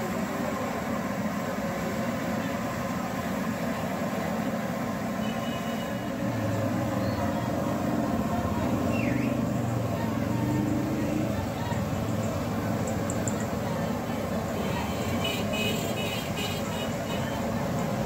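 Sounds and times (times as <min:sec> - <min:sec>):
faint voices: 0:00.0 - 0:18.0
traffic rumble: 0:00.0 - 0:18.0
low engine hum: 0:05.8 - 0:15.3.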